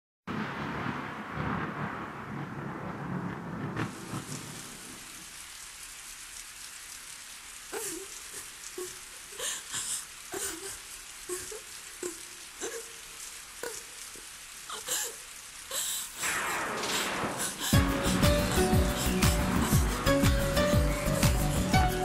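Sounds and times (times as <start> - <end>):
low rumble: 0.3 - 5.2, 16.2 - 22.0
steady rain: 0.3 - 22.0.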